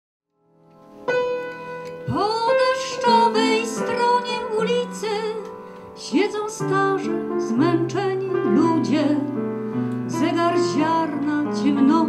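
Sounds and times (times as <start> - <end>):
upright piano: 0.4 - 12.0
woman singing with vibrato: 2.1 - 9.4, 10.1 - 12.0.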